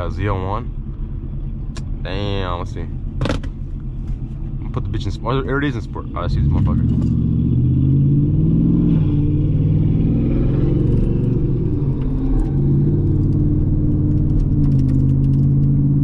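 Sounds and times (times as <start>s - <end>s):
truck engine shifting gears: 0.0s - 16.0s.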